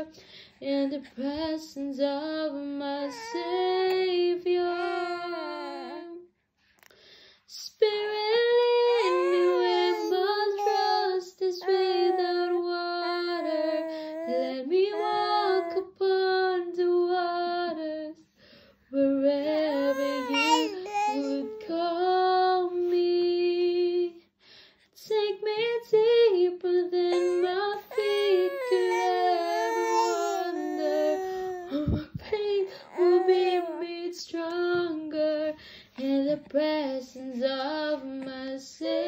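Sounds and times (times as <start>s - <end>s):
baby wailing: 3.0s - 3.6s, 8.9s - 12.6s, 19.6s - 21.6s, 27.1s - 31.8s, 32.7s - 33.9s.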